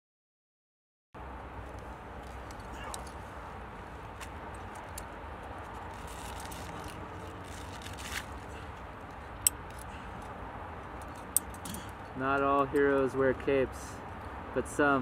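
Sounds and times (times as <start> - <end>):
climbing gear clicking and rattling: 3.8 - 13.1.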